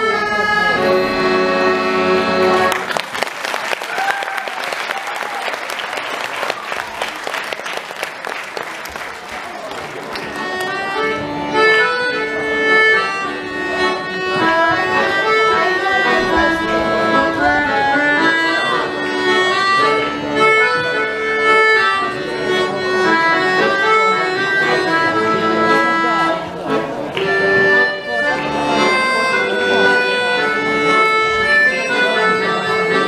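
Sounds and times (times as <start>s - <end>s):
accordion playing quick tune: 0.0s - 3.1s, 9.8s - 33.0s.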